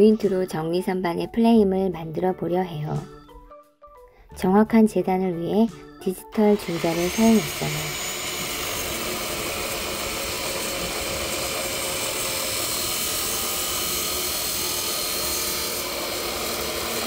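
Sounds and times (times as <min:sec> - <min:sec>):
chop saw grinding steel: 0:06.4 - 0:17.0.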